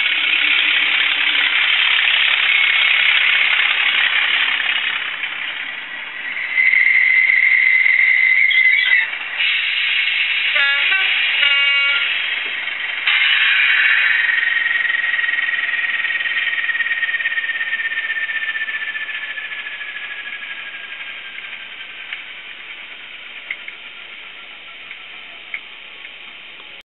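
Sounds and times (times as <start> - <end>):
hiss with falling whistle: 6.2 - 12.4, 13.1 - 21.0.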